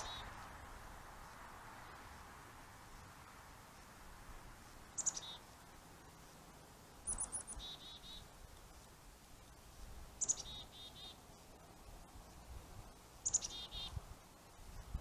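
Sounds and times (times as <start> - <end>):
small bird chirping: 0.0 - 0.4, 4.9 - 5.5, 7.0 - 8.3, 10.2 - 11.4, 13.2 - 14.0
faint steady hiss: 0.0 - 15.0.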